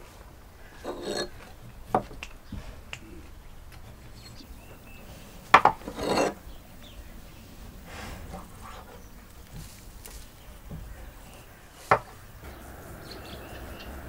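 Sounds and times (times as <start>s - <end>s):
scraping rustle: 0.0s - 14.0s.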